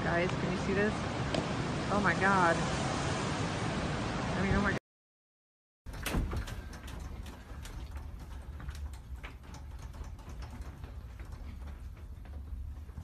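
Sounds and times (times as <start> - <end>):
door and fittings rattling: 5.9 - 13.0.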